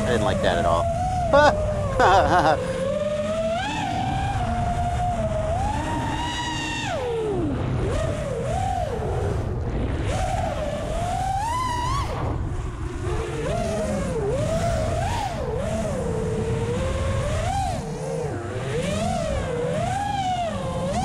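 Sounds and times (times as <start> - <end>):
quadcopter motors whining: 0.0 - 21.0
wind rumble: 0.0 - 21.0.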